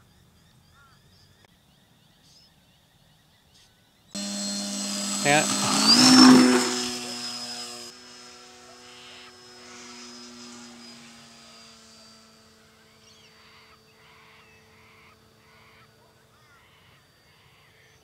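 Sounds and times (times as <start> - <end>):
model plane motor whining: 4.2 - 18.0.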